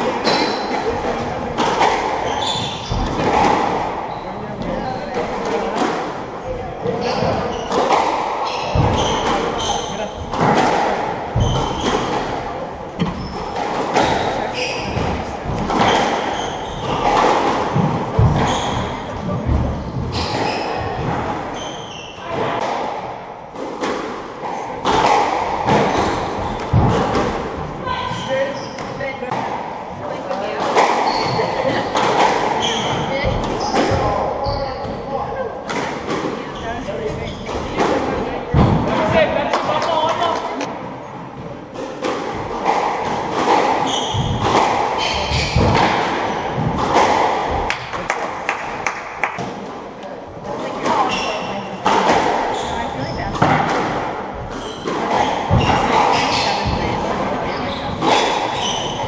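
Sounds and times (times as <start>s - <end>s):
squash ball hits: 0.0s - 6.2s, 6.8s - 29.7s, 30.4s - 36.5s, 41.8s - 49.6s, 50.8s - 57.1s
shoes squeaking on wooden floor: 0.2s - 5.6s, 6.8s - 10.6s, 11.4s - 12.3s, 13.0s - 22.6s, 30.5s - 35.1s, 43.4s - 47.1s, 51.0s - 53.6s, 54.4s - 59.0s.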